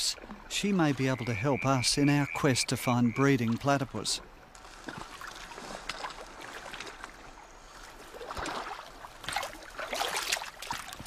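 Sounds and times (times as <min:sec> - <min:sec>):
water splashing and trickling: 0:00.0 - 0:11.0.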